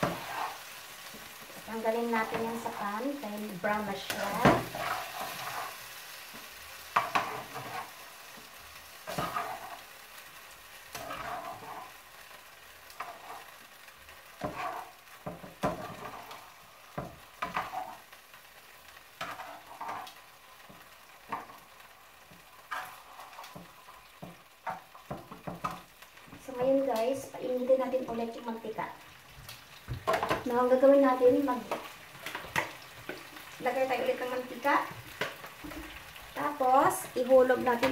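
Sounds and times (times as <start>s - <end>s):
metal tongs scraping in frying pan: 0.0s - 1.2s, 1.8s - 10.0s, 10.8s - 12.3s, 12.9s - 18.3s, 18.9s - 28.2s
oil sizzling: 0.0s - 37.9s.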